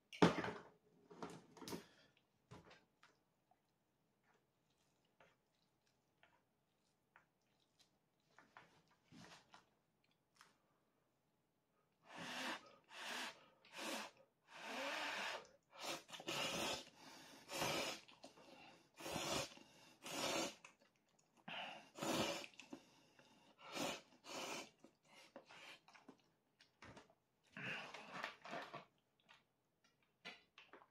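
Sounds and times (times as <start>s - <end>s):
person slurping noodles: 12.1s - 20.9s, 21.8s - 22.8s, 23.6s - 26.2s.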